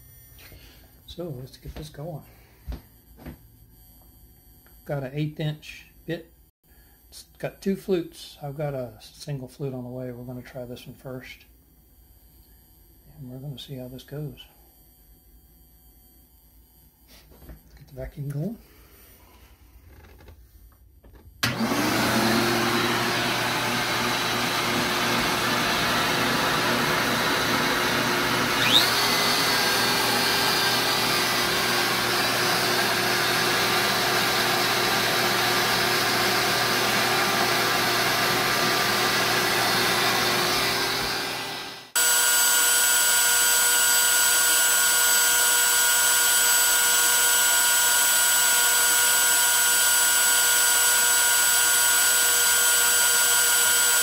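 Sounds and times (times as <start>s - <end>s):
shop vacuum running: 0.4s - 3.4s, 21.1s - 54.0s
router spinning milling metal: 21.4s - 54.0s.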